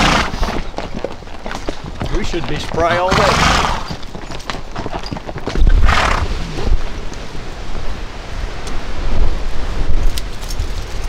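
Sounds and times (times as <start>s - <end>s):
wind rumbling on microphone: 4.8s - 11.0s.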